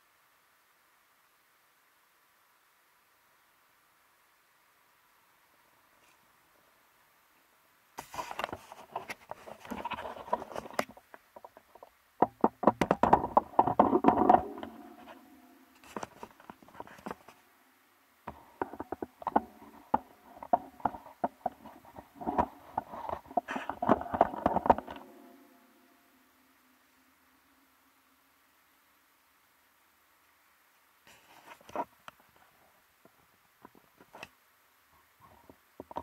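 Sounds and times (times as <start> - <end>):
rubbing and scraping: 8.0 - 17.4, 18.3 - 25.6
clicks and knocks: 8.3 - 17.4, 18.3 - 25.6.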